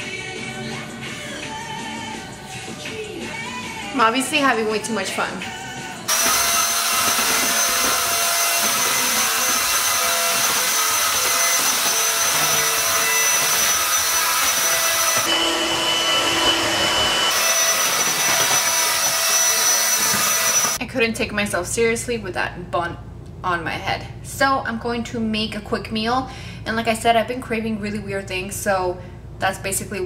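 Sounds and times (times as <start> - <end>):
vacuum cleaner running: 4.0 - 20.8.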